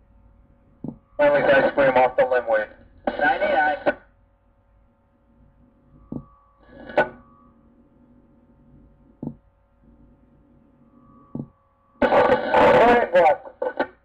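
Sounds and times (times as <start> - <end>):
faint steady hum: 0.0 - 14.0
static burst: 3.1 - 4.0, 12.0 - 14.0.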